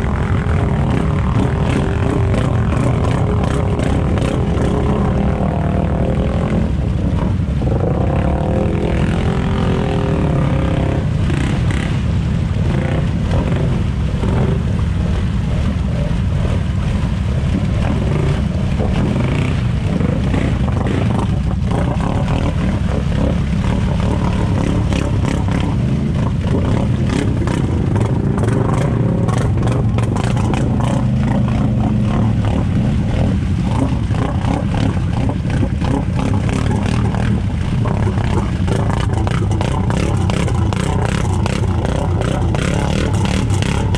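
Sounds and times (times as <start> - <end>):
quad engine revving: 0.0 - 16.7, 17.4 - 43.9
mud slapping against machine: 0.1 - 12.0, 12.7 - 43.9.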